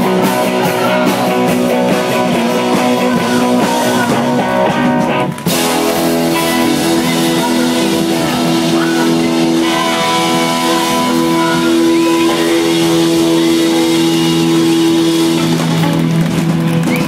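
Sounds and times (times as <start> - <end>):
live rock band music: 0.0 - 17.0
guitar chord ringing: 5.5 - 15.8.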